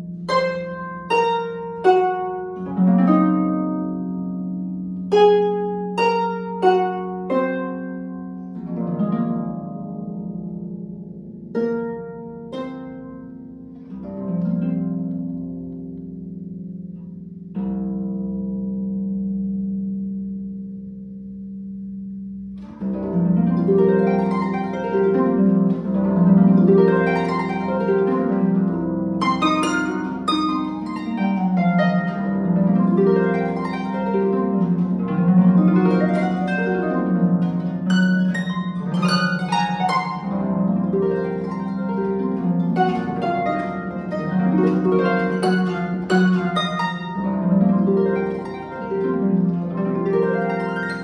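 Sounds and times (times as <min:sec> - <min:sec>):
harp arpeggios: 0:00.0 - 0:51.0.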